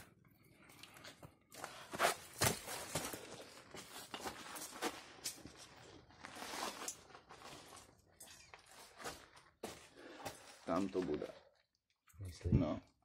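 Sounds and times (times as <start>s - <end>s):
footsteps on dirt and stone: 0.9s - 11.3s.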